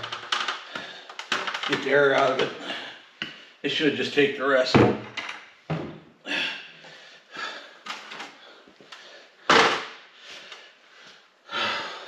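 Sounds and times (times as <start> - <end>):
knocks and clatters of handling: 0.0 - 2.6, 4.8 - 6.0.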